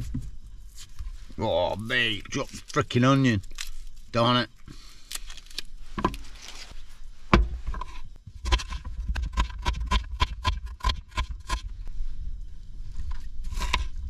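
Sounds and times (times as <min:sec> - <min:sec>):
onion skin rustling: 0:00.3 - 0:07.2.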